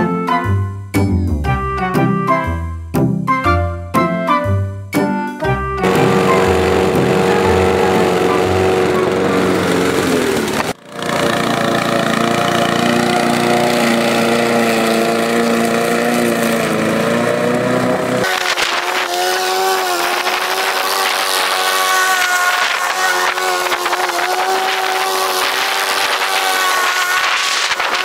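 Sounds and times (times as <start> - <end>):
lawn mower engine running: 5.8 - 28.0.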